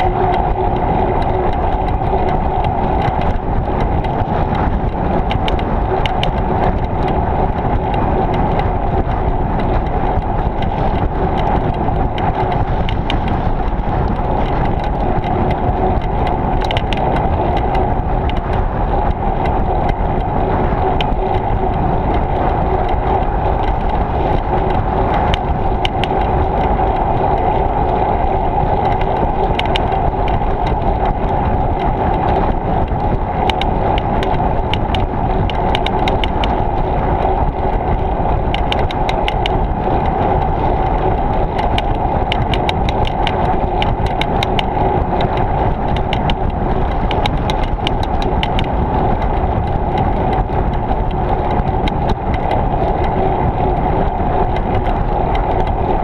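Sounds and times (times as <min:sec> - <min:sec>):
bicycle tyres rolling: 0:00.0 - 0:56.0
wind: 0:00.0 - 0:56.0
small sharp clicks: 0:21.0 - 0:53.2.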